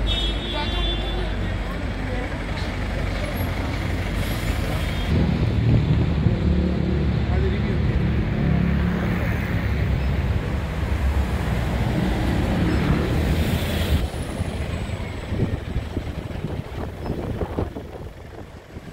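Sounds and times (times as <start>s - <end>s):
bus engine rumble: 0.0s - 18.9s
wind buffeting microphone: 13.9s - 18.9s.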